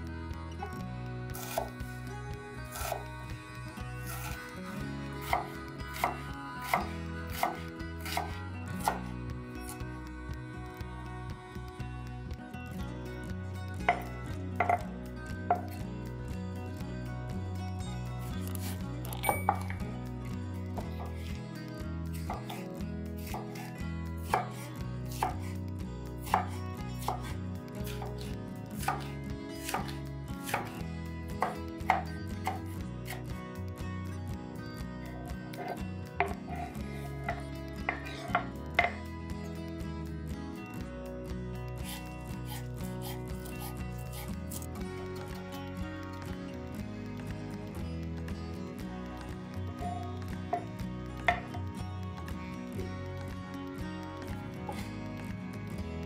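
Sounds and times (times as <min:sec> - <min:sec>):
knife chopping on cutting board: 0:01.4 - 0:01.7, 0:02.7 - 0:03.1, 0:05.2 - 0:09.1, 0:13.9 - 0:14.8, 0:22.3 - 0:25.5, 0:26.2 - 0:27.3, 0:27.9 - 0:30.8, 0:31.4 - 0:33.2.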